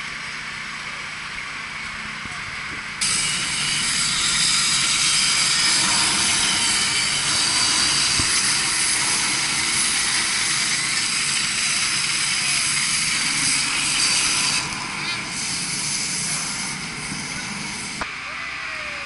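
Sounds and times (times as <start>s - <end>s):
cutting torch hissing: 3.0s - 18.1s.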